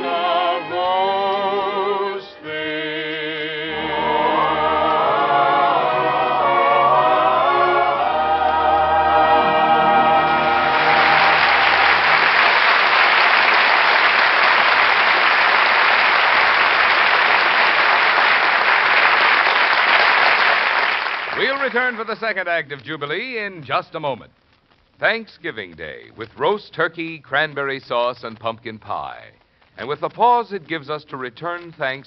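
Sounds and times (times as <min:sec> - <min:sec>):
choir and orchestra show tune: 0:00.0 - 0:13.4
audience applause: 0:10.0 - 0:22.4.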